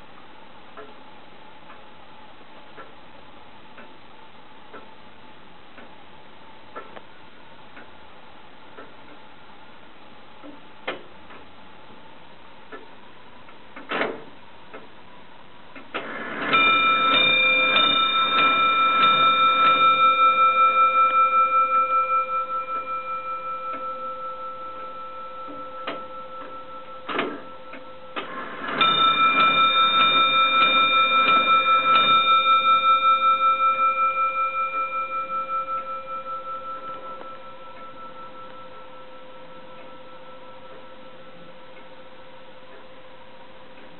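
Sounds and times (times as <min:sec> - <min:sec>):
clock striking on bell: 0:16.1 - 0:42.7.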